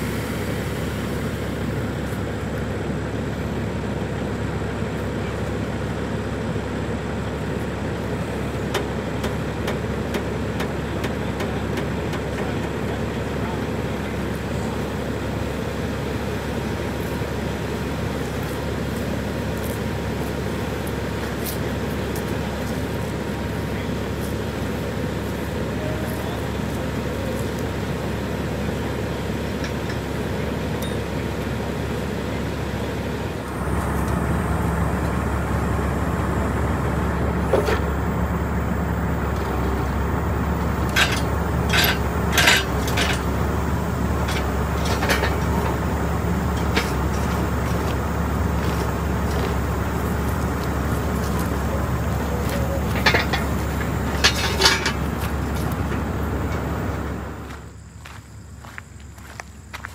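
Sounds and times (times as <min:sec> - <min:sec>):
diesel engine running: 0:00.0 - 0:59.9
metal clanks: 0:40.7 - 0:48.0, 0:51.3 - 0:56.6.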